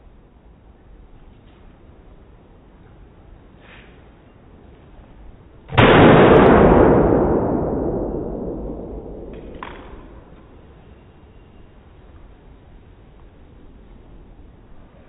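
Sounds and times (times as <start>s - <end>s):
pistol shot: 5.7s - 10.4s.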